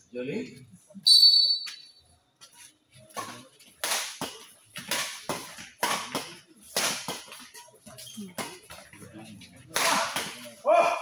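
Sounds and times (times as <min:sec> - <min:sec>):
rackets striking shuttlecock: 0:03.1 - 0:07.6, 0:09.7 - 0:10.5.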